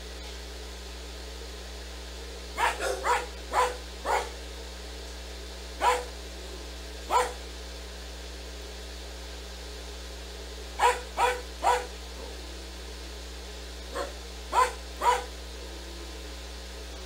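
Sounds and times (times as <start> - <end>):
dog barking: 2.6 - 4.4, 5.8 - 6.2, 7.1 - 7.4, 10.8 - 12.4, 13.9 - 15.4.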